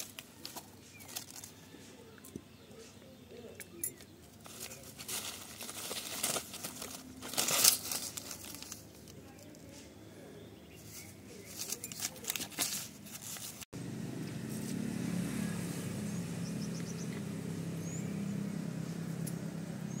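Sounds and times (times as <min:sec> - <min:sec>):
paper and plastic rustling: 0:00.0 - 0:02.0, 0:04.3 - 0:09.9, 0:10.8 - 0:13.7.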